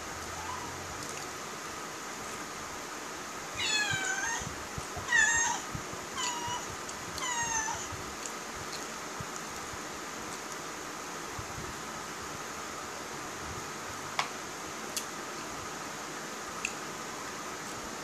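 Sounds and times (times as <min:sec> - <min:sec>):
cat meowing: 0:00.3 - 0:00.8, 0:03.6 - 0:05.6, 0:06.2 - 0:07.9.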